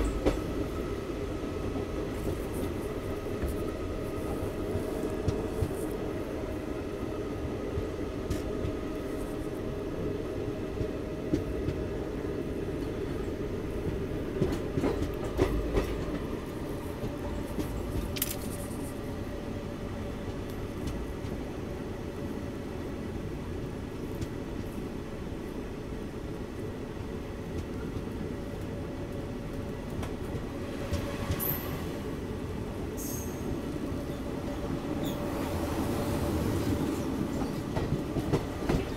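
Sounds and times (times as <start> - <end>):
train wheels rumbling on rail: 0.0 - 38.9.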